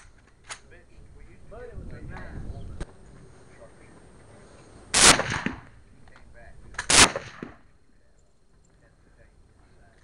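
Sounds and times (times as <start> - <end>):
rifle shots with echo: 4.9 - 5.8, 6.7 - 7.7.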